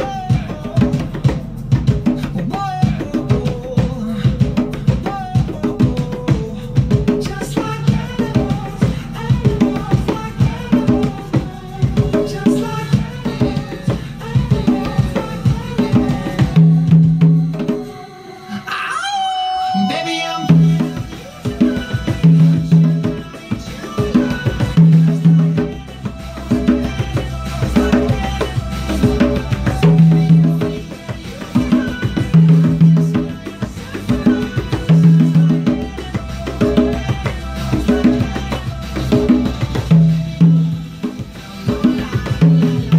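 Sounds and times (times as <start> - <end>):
conga drums played by hand: 0.0 - 18.1, 19.6 - 42.9
pop song from tv: 0.0 - 42.9
person talking: 18.7 - 20.7.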